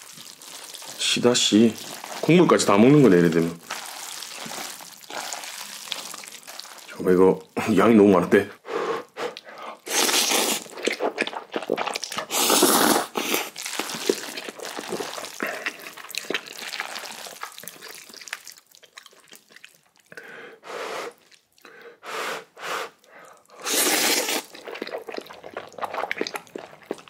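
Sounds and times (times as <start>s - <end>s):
slurping noodles: 0.0s - 7.0s, 8.8s - 19.8s, 22.0s - 27.0s
wet clicky chewing: 10.6s - 12.3s, 13.4s - 20.2s, 24.3s - 27.0s.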